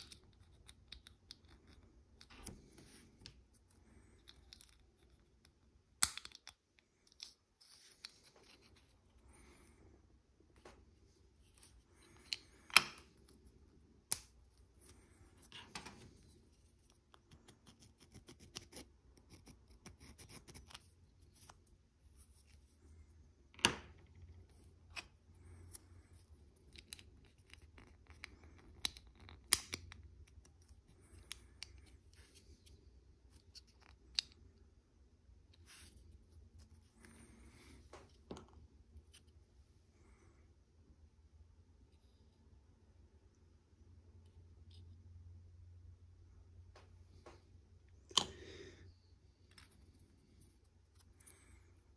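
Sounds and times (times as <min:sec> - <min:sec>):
faint scrapes and rustles: 0:07.0 - 0:13.8, 0:35.5 - 0:40.4.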